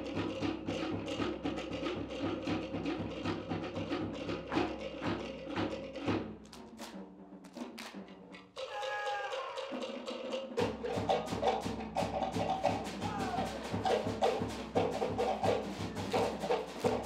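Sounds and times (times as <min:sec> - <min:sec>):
wooden slit drums knocking: 0:08.6 - 0:17.0
bass drum: 0:10.6 - 0:17.0.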